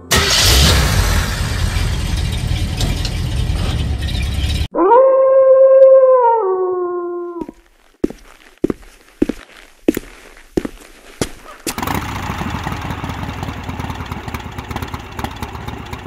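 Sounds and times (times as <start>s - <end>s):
wolf howling: 4.7s - 7.6s.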